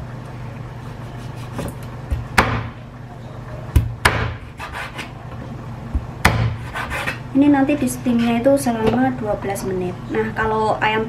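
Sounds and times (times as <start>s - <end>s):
cleaver chopping on wooden board: 1.6s - 2.7s, 3.8s - 5.0s, 6.0s - 7.2s.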